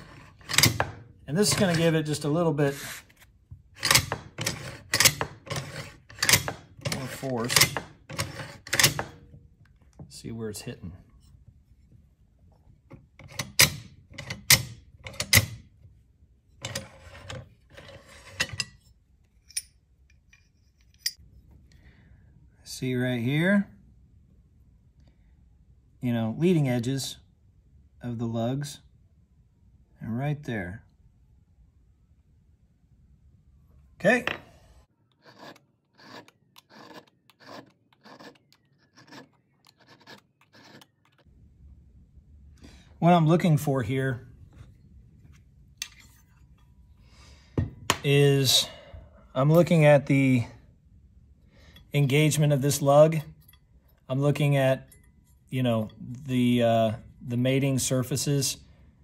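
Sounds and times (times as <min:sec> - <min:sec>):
metal sliding and scraping: 0:00.0 - 0:09.4, 0:16.4 - 0:21.3, 0:34.2 - 0:41.3, 0:44.4 - 0:47.0
hand file rasping on steel: 0:35.1 - 0:41.3.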